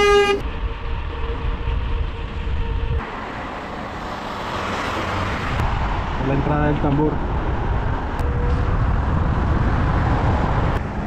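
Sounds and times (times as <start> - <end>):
passing cars: 0.0 - 11.0
wind on microphone: 7.2 - 11.0.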